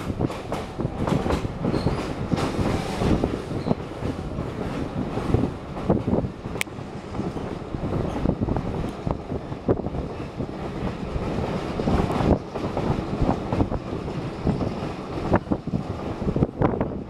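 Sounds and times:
wheels clacking over rail joints: 0.0s - 6.0s
train wheels rumbling on rails: 0.0s - 17.0s.

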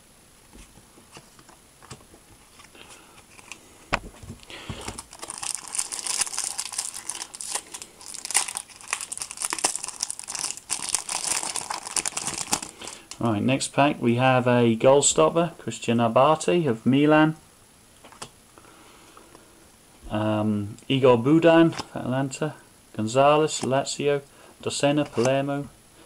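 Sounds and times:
foil wrapper crinkling: 4.4s - 13.2s.

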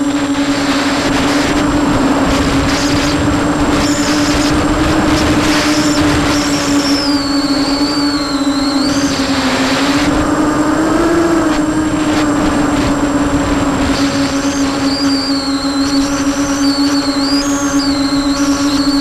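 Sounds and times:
quadcopter motors buzzing: 0.0s - 19.0s
high wavering whistle: 5.4s - 10.0s, 14.0s - 19.0s.

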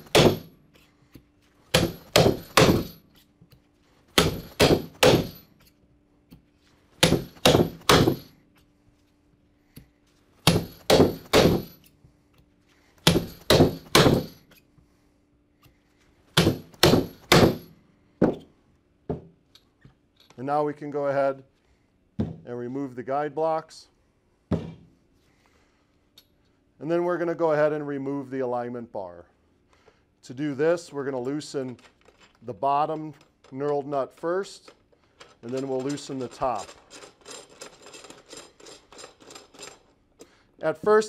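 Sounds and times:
hammer blows on metal rivets: 0.0s - 0.6s, 1.7s - 3.2s, 4.1s - 5.7s, 7.0s - 8.4s, 10.4s - 12.0s, 13.0s - 14.6s, 16.4s - 18.5s.

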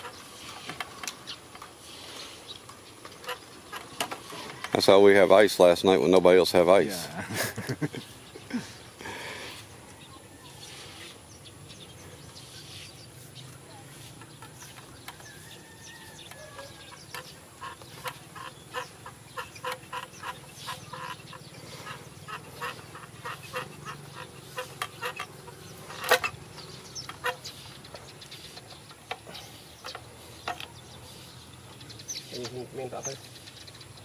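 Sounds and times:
fowl clucking: 15.6s - 26.4s.

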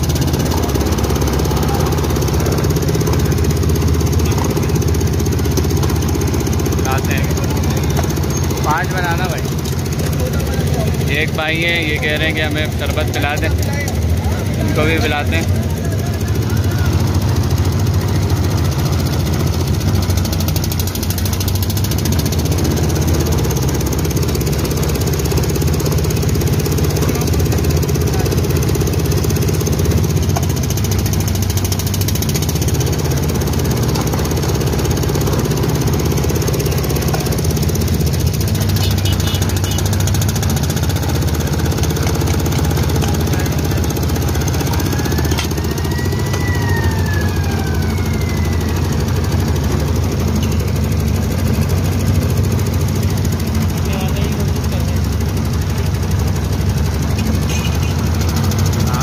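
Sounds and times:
juice crusher engine rumbling: 0.0s - 59.0s
siren rising and falling: 44.7s - 49.5s.

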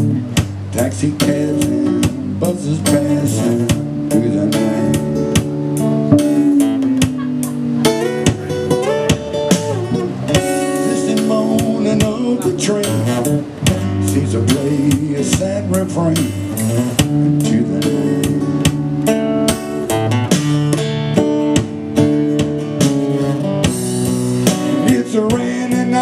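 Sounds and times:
man singing a slow ballad: 0.0s - 5.5s, 10.4s - 18.8s, 24.4s - 26.0s
acoustic guitar strumming: 0.0s - 26.0s.

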